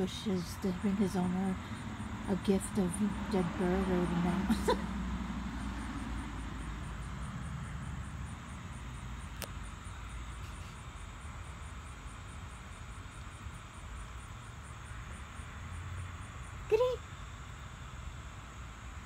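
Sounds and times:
distant traffic rumble: 0.0s - 19.0s.

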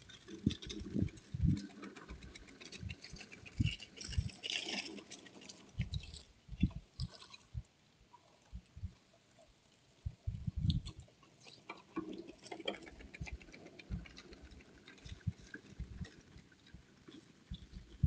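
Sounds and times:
lawn sweeper rolling over grass: 0.0s - 6.2s.

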